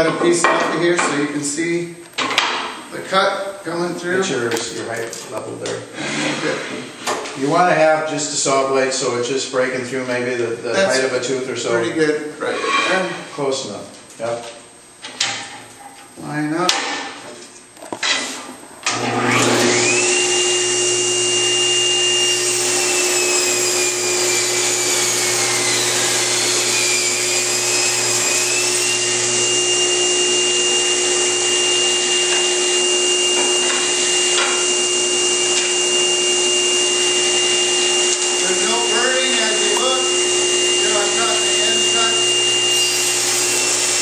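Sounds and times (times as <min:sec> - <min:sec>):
table saw whining: 0:18.9 - 0:44.0.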